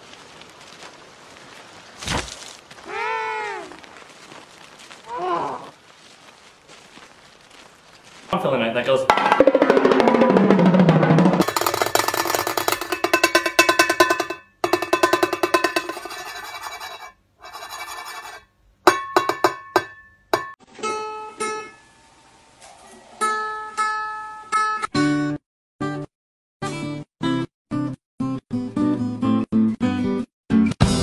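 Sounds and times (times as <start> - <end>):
drum roll: 9.0 - 17.0.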